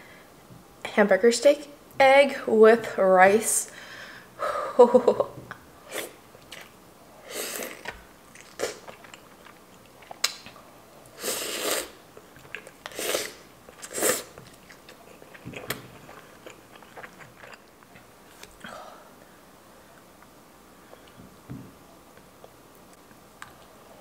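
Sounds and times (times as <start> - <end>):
chewing mouth smacks: 7.8 - 10.6, 13.7 - 18.6.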